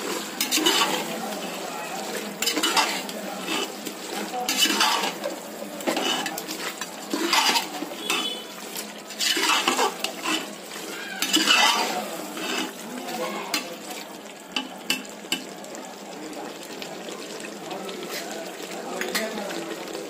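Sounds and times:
ladle scraping in metal pot: 0:00.0 - 0:12.8.

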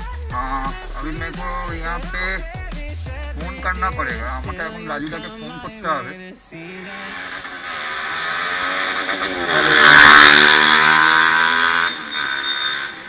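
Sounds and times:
motorcycle engine accelerating: 0:00.0 - 0:06.1, 0:06.9 - 0:13.0
loud rush of noise: 0:03.3 - 0:13.0.

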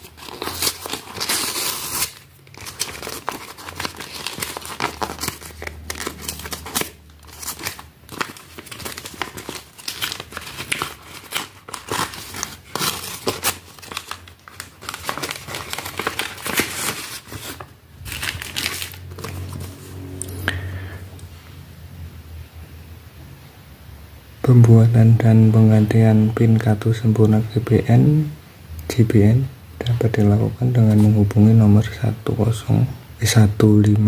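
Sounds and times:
plastic mailer crinkling and tearing: 0:00.0 - 0:19.8.

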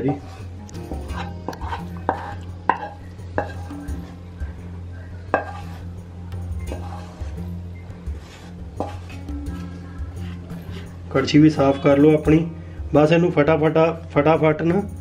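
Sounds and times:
spatula scraping a pan: 0:00.0 - 0:04.4, 0:05.2 - 0:12.2
spatula knocking against pan: 0:00.9 - 0:03.7, 0:05.3 - 0:05.6.

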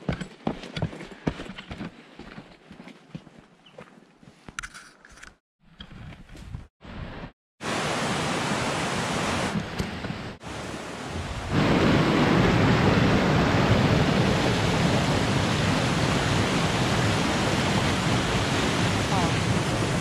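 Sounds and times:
stream rushing over rocks: 0:07.6 - 0:09.6, 0:10.4 - 0:20.0.

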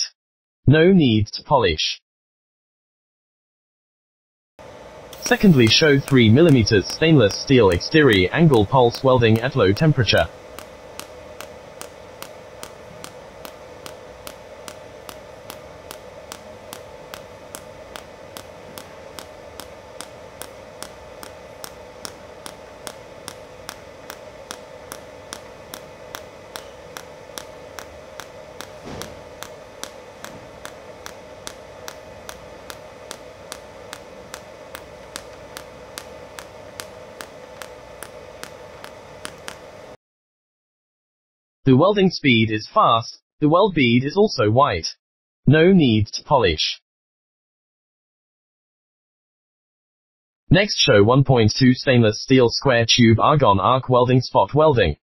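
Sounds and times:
welder hum: 0:04.6 - 0:40.0
welding arc ticking: 0:04.6 - 0:40.0.

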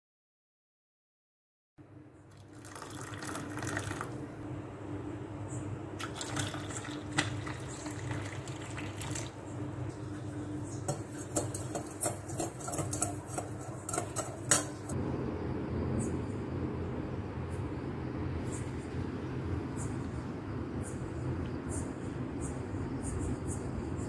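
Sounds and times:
steady low hum: 0:01.8 - 0:24.0
milk pouring: 0:02.3 - 0:04.2, 0:06.0 - 0:09.4
tea pouring into glass cup: 0:02.3 - 0:04.2, 0:06.0 - 0:09.4.

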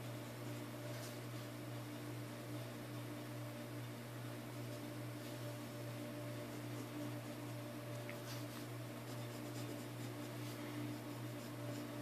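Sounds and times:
steady low hum: 0:00.0 - 0:12.0
pencil scratching on paper: 0:06.4 - 0:07.6, 0:08.3 - 0:12.0.

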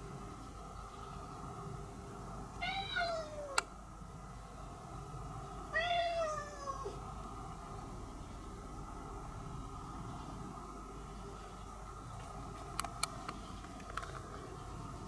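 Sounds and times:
cat meowing: 0:02.6 - 0:03.6, 0:05.7 - 0:07.0.

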